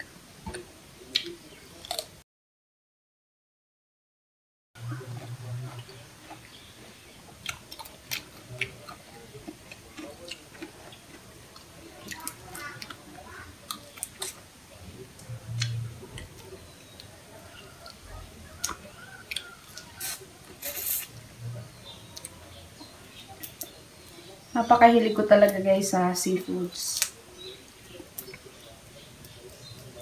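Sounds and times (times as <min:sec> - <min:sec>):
chewing: 0:00.5 - 0:02.1, 0:04.8 - 0:14.4, 0:15.0 - 0:24.3.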